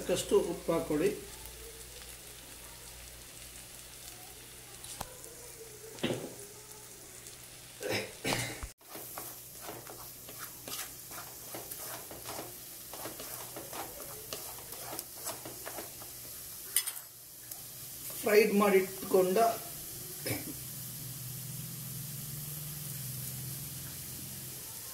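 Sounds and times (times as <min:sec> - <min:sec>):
eggs sizzling in a pan: 0:00.0 - 0:24.9
wooden spatula scraping: 0:08.8 - 0:16.8.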